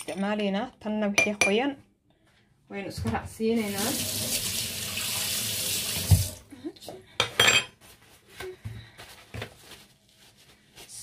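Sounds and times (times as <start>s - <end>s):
water running: 3.4s - 6.5s.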